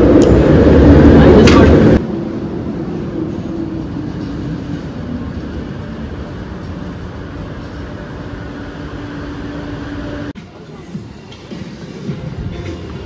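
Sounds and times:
low whine: 0:00.0 - 0:10.4
train pulling into station: 0:00.0 - 0:13.0.

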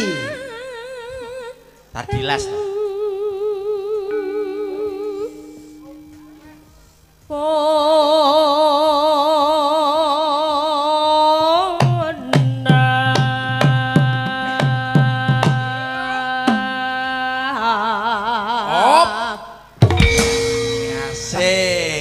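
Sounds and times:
woman singing with vibrato: 0:00.0 - 0:22.0
steady held tones: 0:02.5 - 0:09.3, 0:19.8 - 0:22.0
hand drum strokes: 0:04.2 - 0:07.0, 0:19.8 - 0:22.0.

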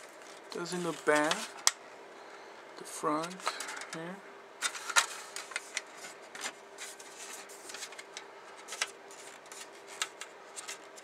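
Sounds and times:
plastic parts clicking and rustling: 0:00.1 - 0:01.8, 0:03.2 - 0:06.6, 0:07.3 - 0:11.0.

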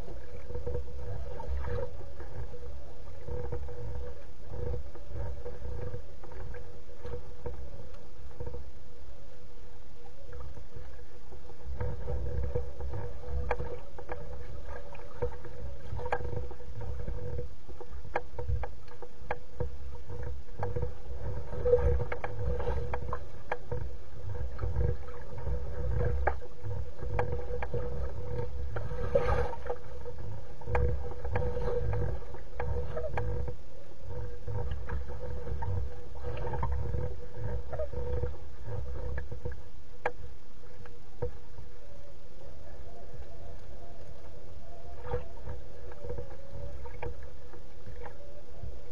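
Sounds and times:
small waves lapping against reeds: 0:10.1 - 0:48.9.

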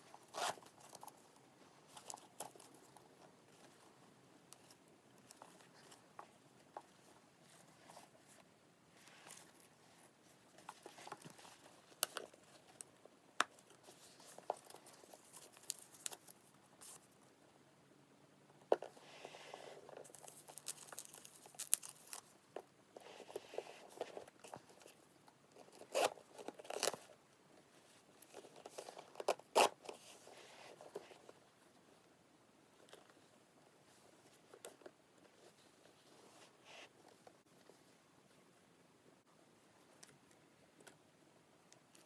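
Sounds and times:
packaging crinkling and tearing: 0:20.0 - 0:22.3.

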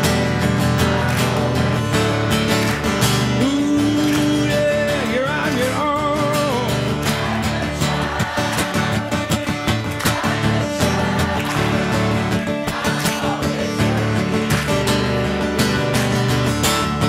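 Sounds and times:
acoustic guitar strumming: 0:00.0 - 0:17.0
person singing: 0:03.3 - 0:06.9.

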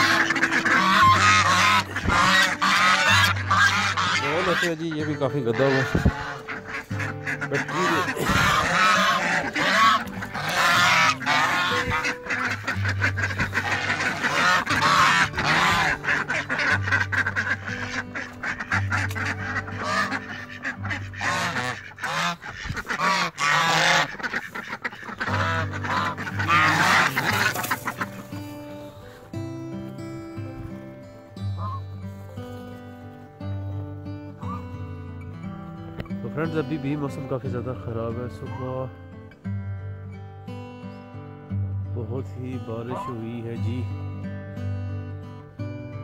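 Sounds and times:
geese honking: 0:00.0 - 0:29.4, 0:31.4 - 0:33.2, 0:34.3 - 0:35.0, 0:42.4 - 0:43.8.

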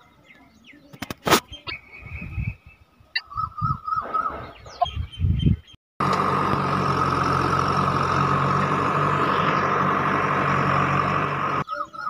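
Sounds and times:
birds chirping: 0:00.0 - 0:12.0
engine-like drone with whine: 0:06.0 - 0:12.0.

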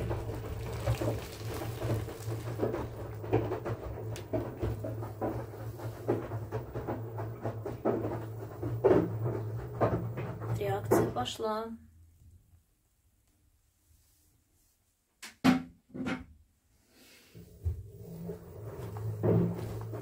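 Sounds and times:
water pouring into basin: 0:00.0 - 0:04.0.

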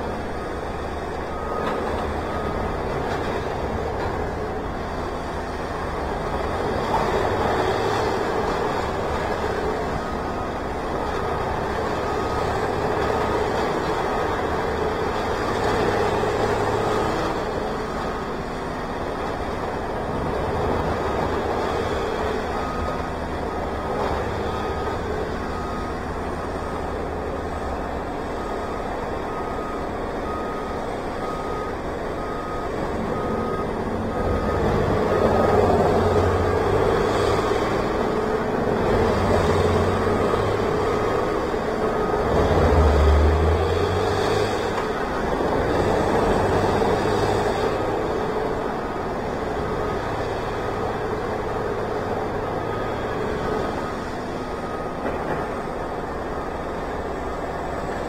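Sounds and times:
reversing alarm beeping: 0:00.0 - 0:58.0
tree shredder engine running: 0:32.2 - 0:58.0.

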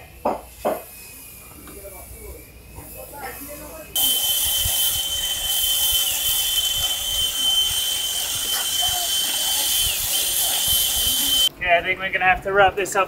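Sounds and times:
cordless drill motor whining: 0:04.0 - 0:11.5.

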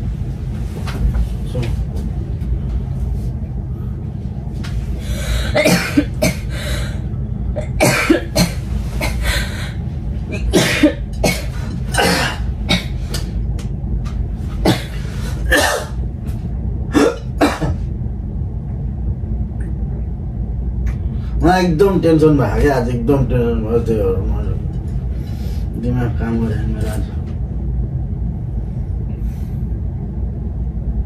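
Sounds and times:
steady low hum: 0:00.0 - 0:31.0
person coughing: 0:05.4 - 0:06.5, 0:07.6 - 0:09.3, 0:10.3 - 0:13.0, 0:14.6 - 0:16.0, 0:16.9 - 0:17.8.

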